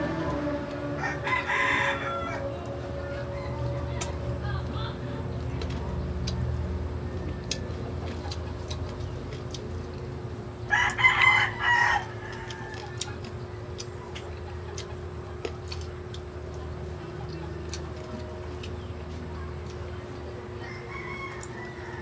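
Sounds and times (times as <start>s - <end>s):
low hum: 0.0s - 10.7s
rooster crowing: 0.5s - 3.9s, 10.7s - 13.1s, 20.6s - 22.0s.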